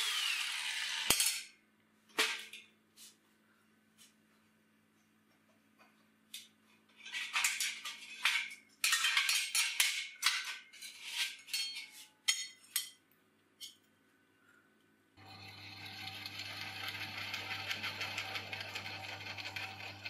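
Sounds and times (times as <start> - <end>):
steel plates scraping on metal: 7.0 - 12.9.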